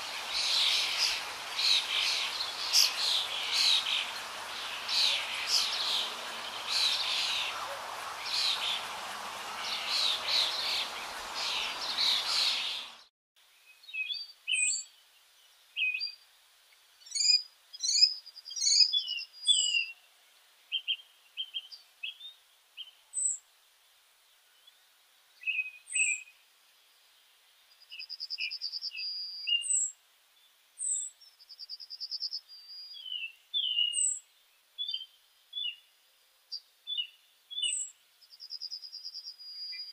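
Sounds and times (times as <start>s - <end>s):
birds chirping: 0.0s - 13.1s
steady hiss: 0.0s - 13.6s.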